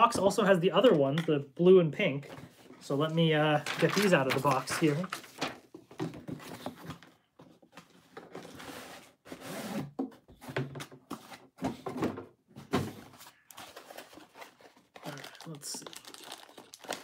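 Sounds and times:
cardboard rustling and scraping: 2.2s - 15.0s.

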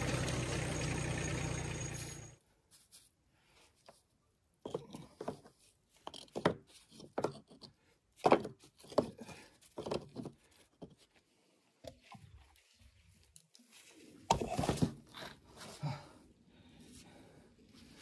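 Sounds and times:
stones knocking and scraping: 4.6s - 11.0s.

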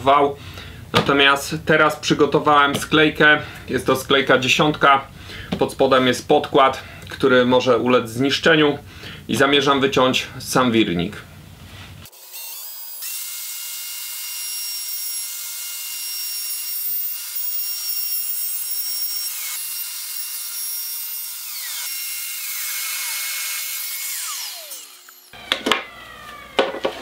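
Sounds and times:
router motor whine: 12.1s - 27.0s.

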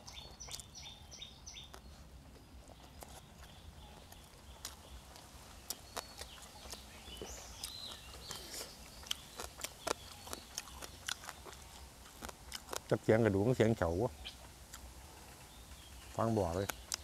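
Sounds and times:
close-up chewing: 0.0s - 13.5s, 14.2s - 17.0s
small bones crunching: 1.7s - 13.0s.

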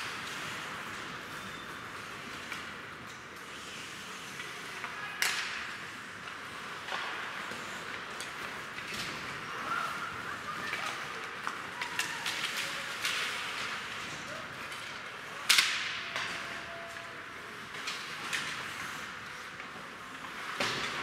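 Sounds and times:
skates scraping on ice: 17.3s - 21.0s.

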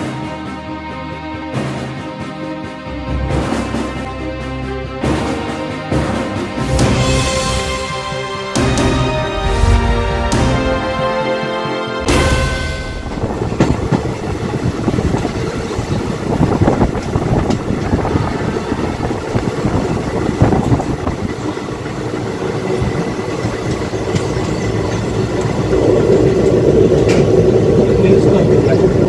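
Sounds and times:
train wheels rumbling on rails: 12.0s - 29.0s
clatter over rail joints: 12.8s - 29.0s.

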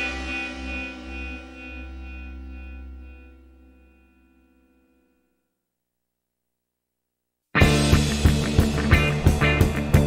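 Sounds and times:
held music chord ringing: 0.0s - 5.4s.

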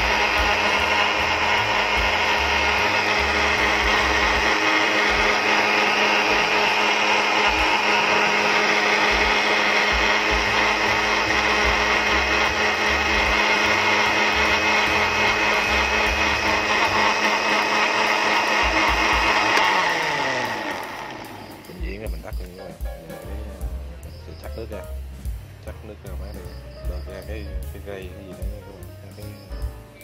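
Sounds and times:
blender motor running: 0.0s - 22.6s.

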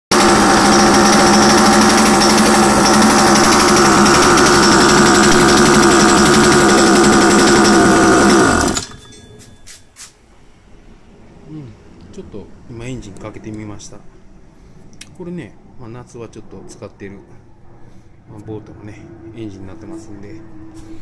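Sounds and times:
outboard motor running: 0.1s - 8.9s.

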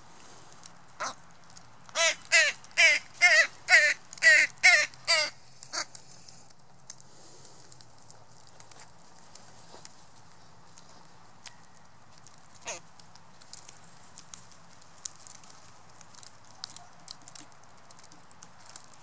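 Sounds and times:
crow cawing: 1.0s - 1.2s, 1.9s - 6.0s, 12.6s - 12.9s.

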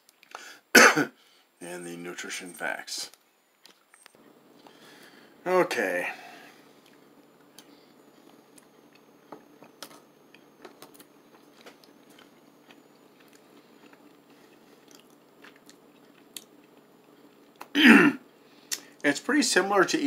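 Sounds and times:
person chewing: 8.5s - 17.7s.

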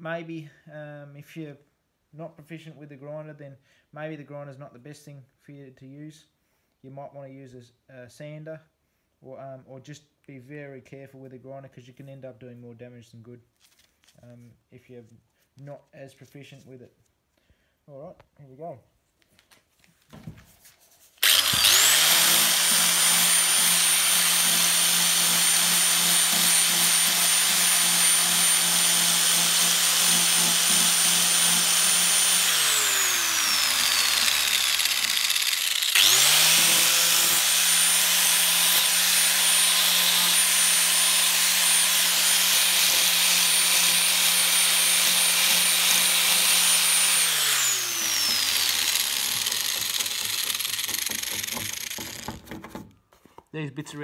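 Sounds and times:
angle grinder whining and grinding: 21.2s - 52.4s.

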